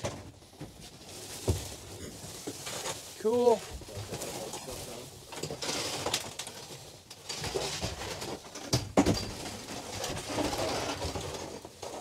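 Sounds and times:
rustling and scraping of blinds: 0.0s - 12.0s.

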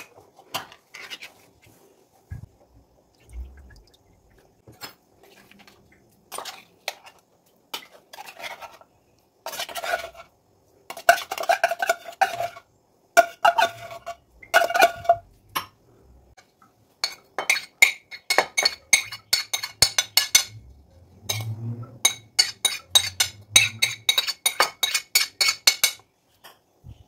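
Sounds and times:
metal spoon scraping a tin: 7.8s - 10.3s, 10.9s - 12.6s, 13.2s - 15.2s, 17.0s - 26.0s.

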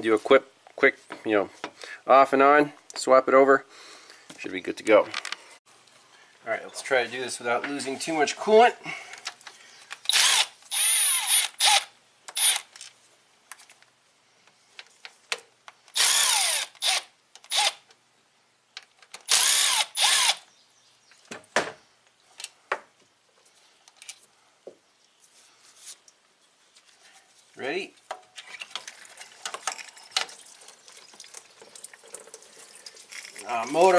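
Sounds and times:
cordless power tool whirring: 10.1s - 12.7s, 15.9s - 17.8s, 19.3s - 20.4s.

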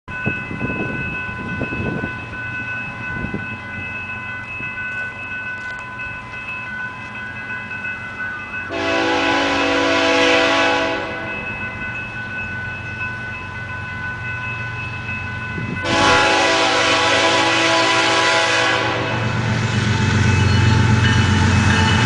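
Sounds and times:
high ringing tones: 0.1s - 17.6s, 18.2s - 22.0s
train air horn chord: 8.7s - 11.3s, 15.8s - 19.3s.

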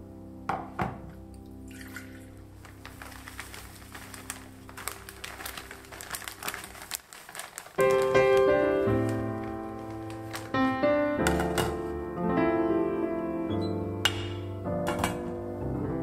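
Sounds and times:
piano music: 0.0s - 16.0s
plastic packet crinkling: 2.5s - 11.6s.

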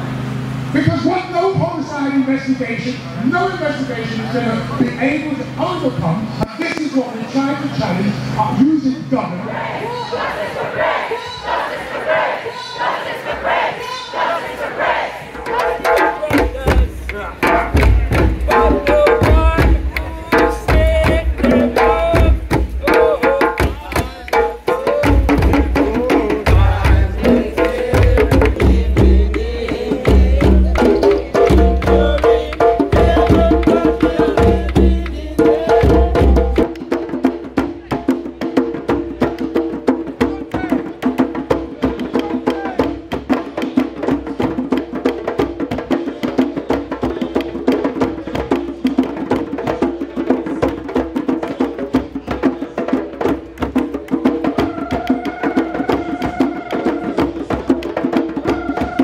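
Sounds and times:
drums struck with sticks: 15.4s - 59.0s
hand drums played together: 15.4s - 59.0s.

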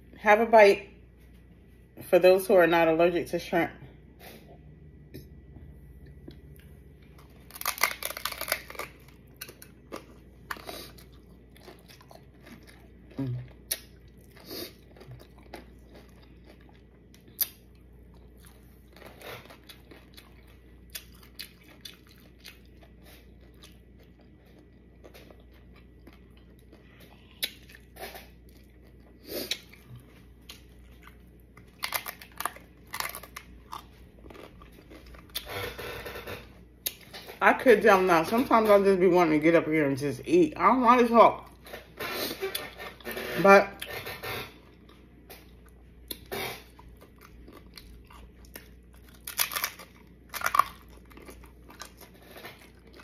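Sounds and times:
chewing: 6.0s - 35.5s, 44.6s - 53.0s
crunchy bites: 7.2s - 16.6s, 46.1s - 53.0s.

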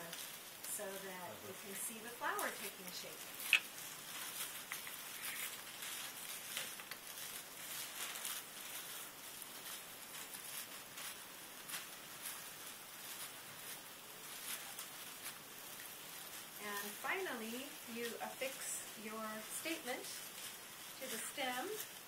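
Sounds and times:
tissue paper rustling and crinkling: 0.0s - 22.0s.

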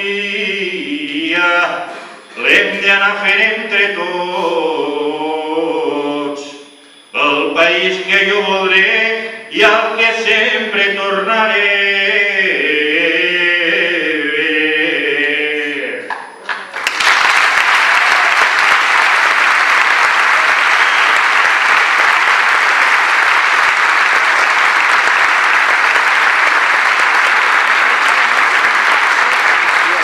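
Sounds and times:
man singing a long note: 0.0s - 16.1s
audience applause: 16.5s - 30.0s.

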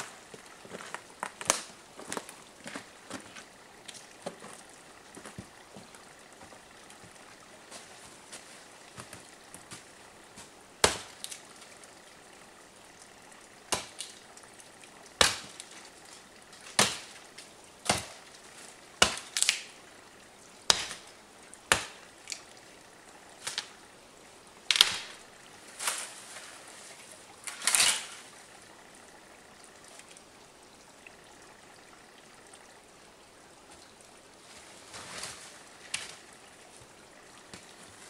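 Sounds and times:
axe chopping wood: 10.8s - 11.3s, 13.7s - 14.1s, 15.2s - 15.6s, 16.7s - 17.2s, 17.8s - 18.2s, 19.0s - 19.4s, 20.7s - 21.0s, 21.7s - 22.0s, 24.7s - 25.2s.

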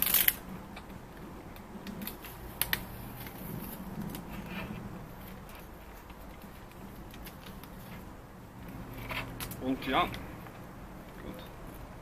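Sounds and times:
plastic scrape: 2.0s - 6.2s.

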